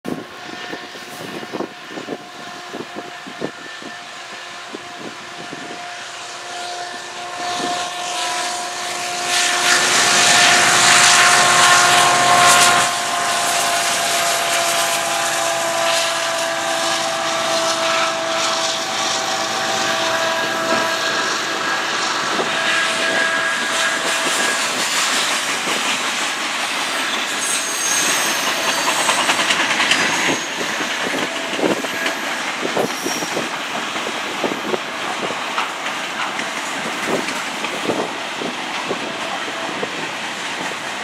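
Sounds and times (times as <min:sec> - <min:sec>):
diesel locomotives passing: 0:00.1 - 0:41.0
steady whine: 0:01.5 - 0:40.0.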